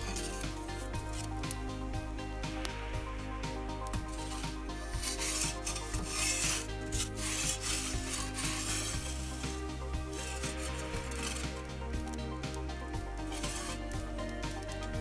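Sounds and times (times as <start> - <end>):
metal pizza peel scraping stone: 0.0 - 1.5, 4.2 - 11.7, 13.2 - 14.3
background music: 0.0 - 15.0.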